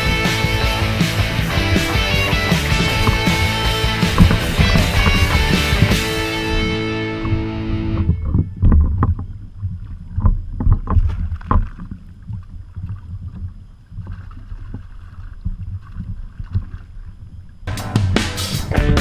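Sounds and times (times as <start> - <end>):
fish splashing in water: 0.0 - 7.8, 9.1 - 17.6
background music: 0.0 - 8.2, 17.7 - 19.0
wind rumble on microphone: 4.1 - 17.6.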